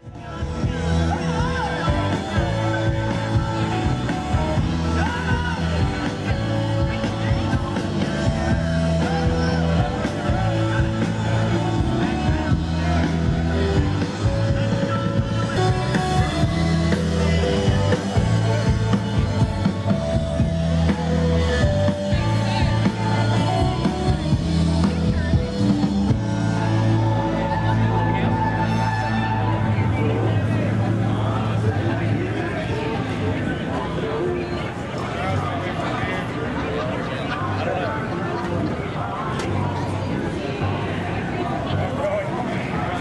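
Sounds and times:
rock music with singing and drums: 0.0 - 33.2.

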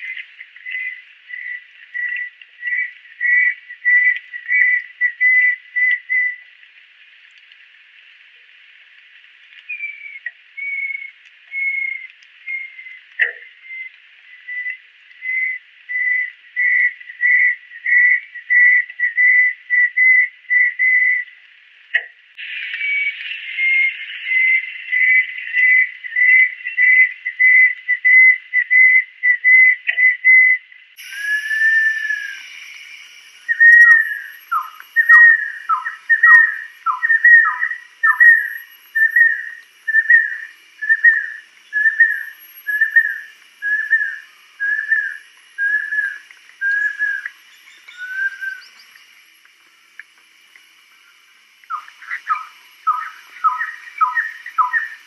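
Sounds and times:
faint steady hiss: 0.0 - 55.0
kingfisher whistling: 9.7 - 13.0, 22.8 - 48.8, 51.6 - 55.0.

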